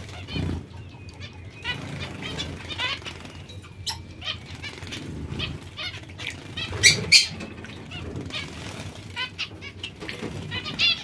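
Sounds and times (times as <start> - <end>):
birds splashing and wing flutters: 0.0 - 11.0
short chirping calls: 0.3 - 4.9.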